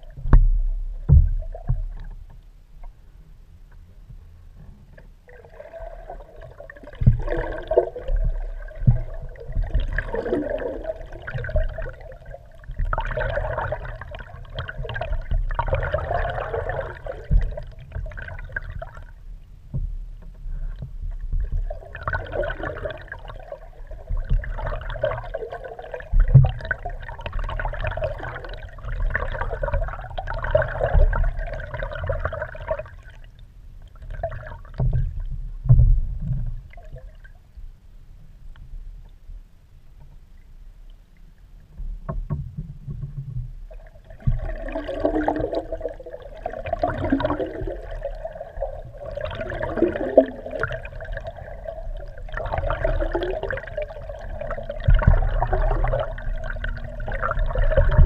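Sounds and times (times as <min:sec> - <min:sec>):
steady low rumble: 0:00.0 - 0:22.0
underwater water rushing: 0:05.0 - 0:19.3, 0:20.5 - 0:33.3, 0:43.6 - 0:58.0.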